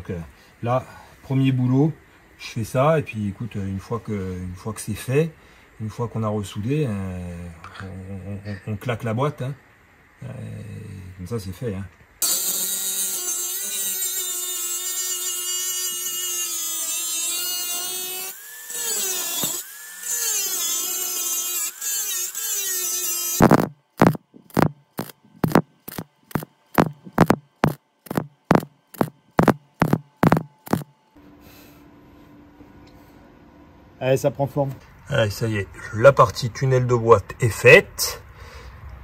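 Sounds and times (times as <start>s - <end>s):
angle grinder cutting steel: 12.2s - 30.9s
sharp knocks: 23.4s - 30.9s.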